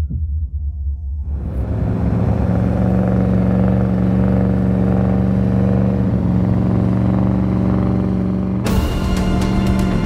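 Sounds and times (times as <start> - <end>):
car engine running: 1.3 - 10.0.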